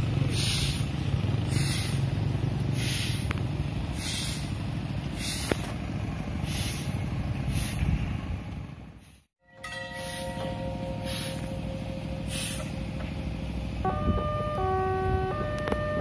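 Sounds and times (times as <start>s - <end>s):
motorcycle engine rumble: 0.0s - 16.0s
short hiss: 12.3s - 12.8s.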